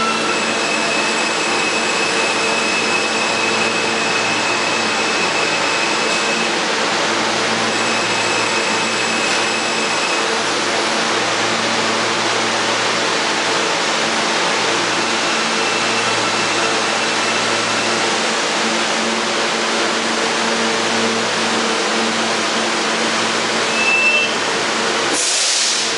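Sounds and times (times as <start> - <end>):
brake squeal: 0.0 - 6.5, 23.7 - 24.5
subway train wheels on rails: 0.0 - 25.9.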